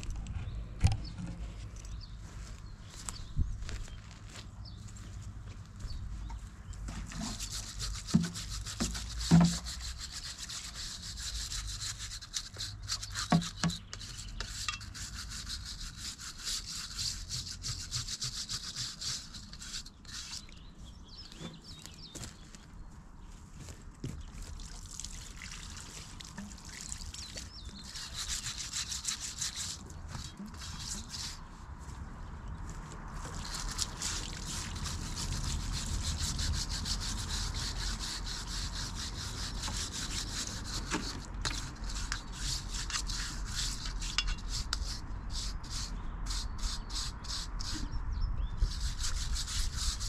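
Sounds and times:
brush scrubbing surface: 7.0 - 20.5, 27.8 - 31.9, 33.2 - 47.8, 48.7 - 50.0.

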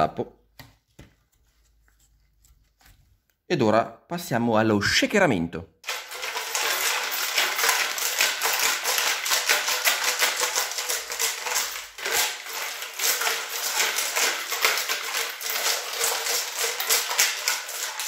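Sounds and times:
screws rattling inside metal tank: 5.8 - 18.0.

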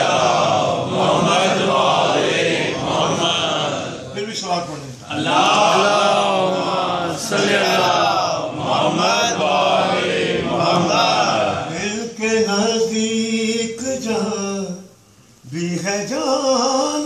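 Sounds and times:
man chanting into a microphone: 10.6 - 17.0.

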